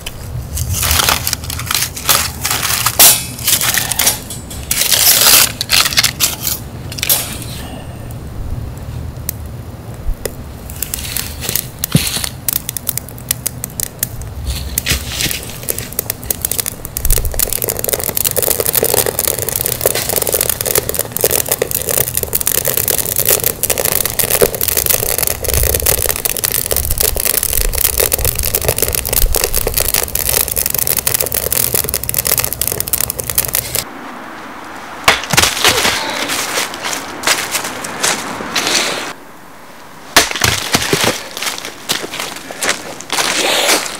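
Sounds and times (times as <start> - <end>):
campfire crackling and popping: 0.0 - 7.2, 8.1 - 33.9, 40.1 - 43.9
rustling in dry leaves: 14.3 - 34.0, 35.2 - 39.2, 40.2 - 43.9.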